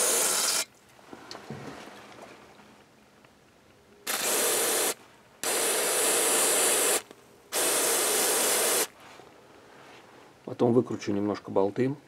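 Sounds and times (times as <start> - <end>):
aerosol can spraying: 0.0 - 0.7, 4.1 - 8.9.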